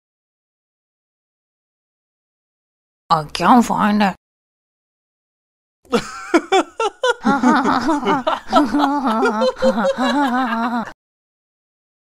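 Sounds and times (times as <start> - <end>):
cartoon character laughing: 5.9 - 11.0.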